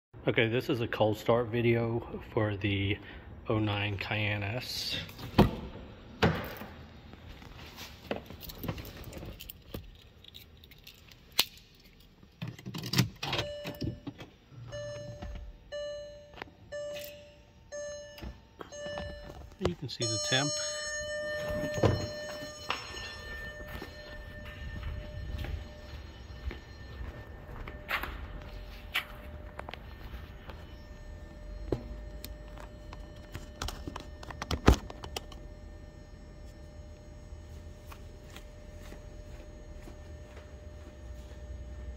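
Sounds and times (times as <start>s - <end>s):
keys jangling and clicking: 8.3s - 14.0s
seat-belt warning chime: 13.2s - 41.9s
footsteps on concrete floor: 21.4s - 30.7s, 37.8s - 41.4s.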